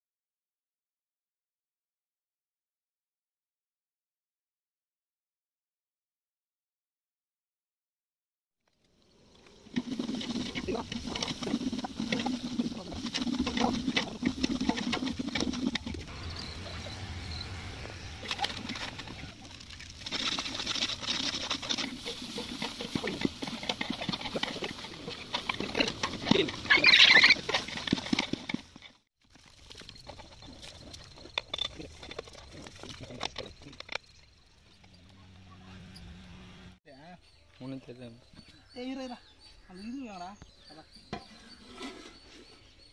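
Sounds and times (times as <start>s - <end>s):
metal ladle scraping cooking pot: 41.2s - 42.8s.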